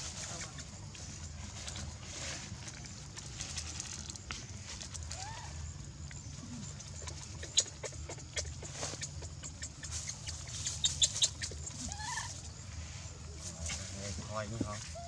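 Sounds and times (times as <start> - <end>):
dry leaves crackling and rustling: 0.0 - 5.7.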